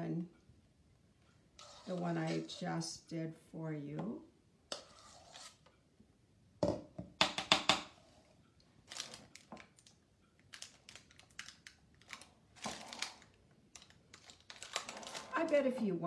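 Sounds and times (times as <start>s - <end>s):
spoon scraping metal bowl: 1.6s - 2.6s, 4.7s - 5.7s
parchment paper crinkling: 8.8s - 15.8s.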